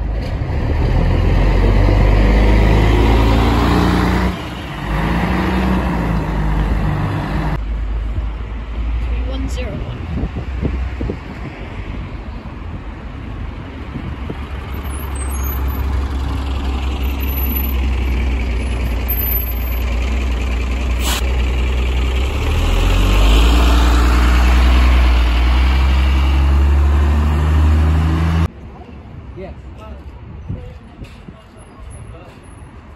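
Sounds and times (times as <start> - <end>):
bus diesel engine passing: 0.0 - 8.8, 13.6 - 28.5.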